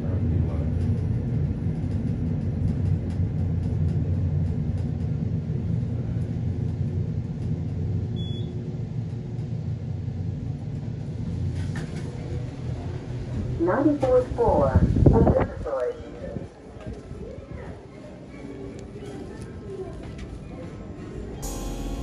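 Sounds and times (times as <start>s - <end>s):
short high beep: 21.4s - 22.0s.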